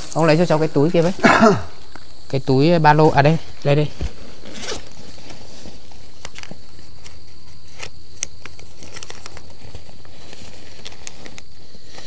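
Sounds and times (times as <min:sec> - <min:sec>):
backpack clicks and rustles: 0:04.0 - 0:12.0.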